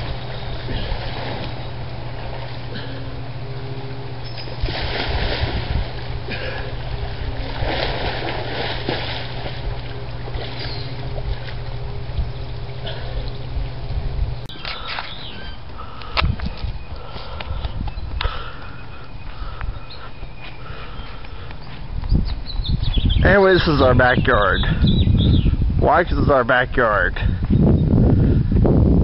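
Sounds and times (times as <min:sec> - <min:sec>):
water splashing in a pool: 0:00.0 - 0:03.0, 0:04.3 - 0:13.7
low hum: 0:00.0 - 0:29.0.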